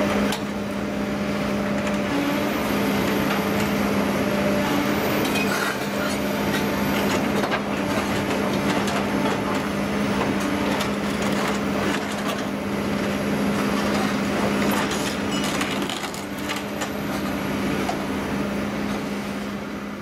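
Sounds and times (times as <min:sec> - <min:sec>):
excavator engine running: 0:00.0 - 0:20.0.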